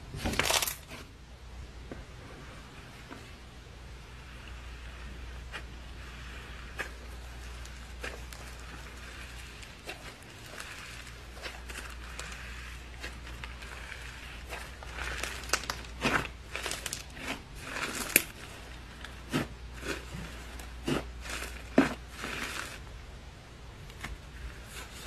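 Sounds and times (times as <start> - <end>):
slime crackling and squelching: 4.0 - 22.8.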